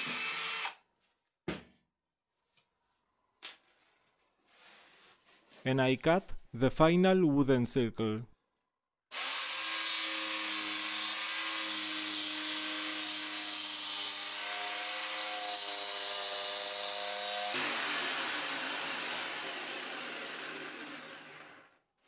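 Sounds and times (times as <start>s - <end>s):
jigsaw sawing wood: 0.0s - 0.8s, 9.1s - 21.9s.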